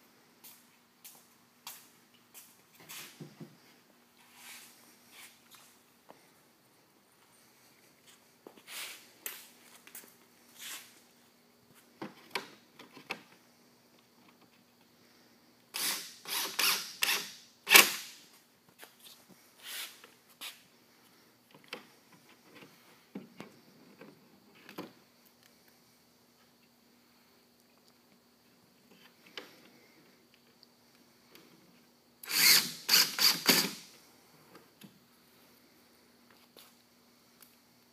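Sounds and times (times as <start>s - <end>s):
impact driver driving screws: 15.8s - 18.1s, 32.2s - 33.8s.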